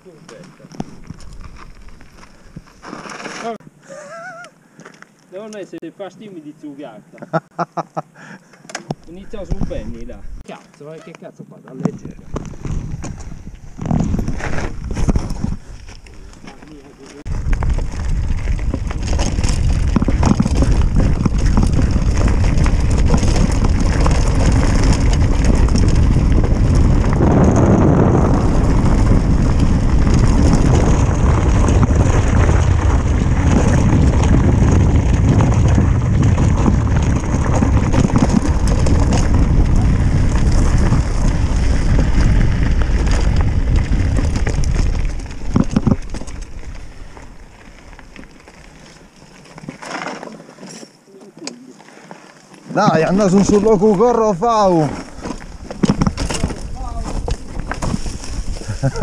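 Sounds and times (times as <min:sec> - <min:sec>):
bike tyres rumbling over rough ground: 0:00.0 - 0:04.0, 0:08.9 - 0:11.2, 0:11.8 - 0:59.0
wind rushing over microphone: 0:12.1 - 0:16.4, 0:17.2 - 0:48.0, 0:52.9 - 0:59.0.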